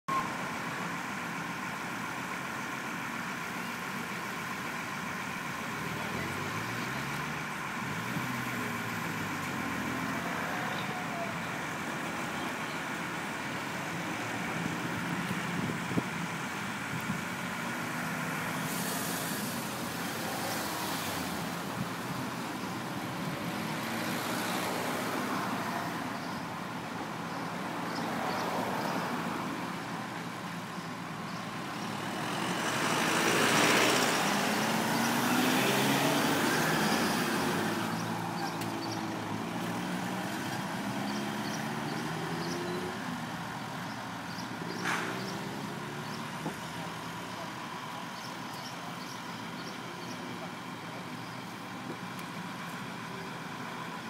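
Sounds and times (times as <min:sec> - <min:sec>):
vehicle engine revving: 0:31.6 - 0:43.4.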